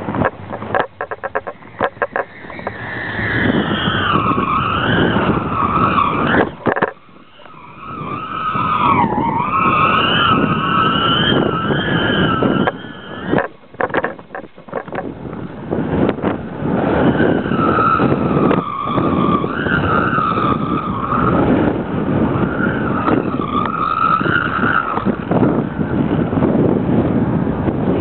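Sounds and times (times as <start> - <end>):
stunt kites whining: 0.0 - 28.0
wind rushing on microphone: 0.0 - 28.0.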